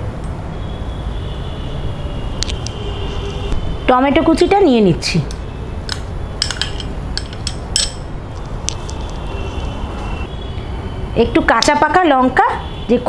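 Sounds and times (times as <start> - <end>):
metal spoon clinking on glass bowl: 6.4 - 8.1.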